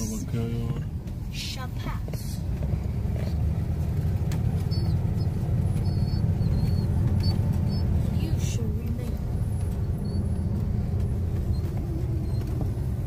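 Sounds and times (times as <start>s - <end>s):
road noise: 0.0s - 13.0s
vehicle engine rumble: 0.0s - 13.0s.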